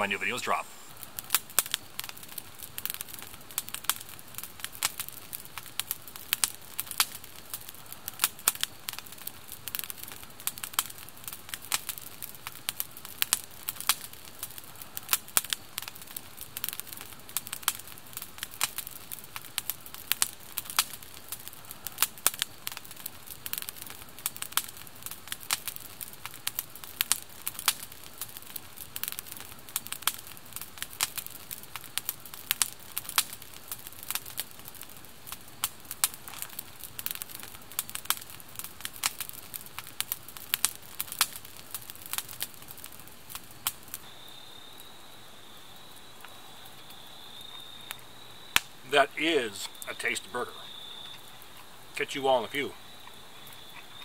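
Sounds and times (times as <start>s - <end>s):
low hiss: 0.0s - 27.1s, 39.7s - 54.0s
campfire crackling and popping: 0.0s - 54.0s.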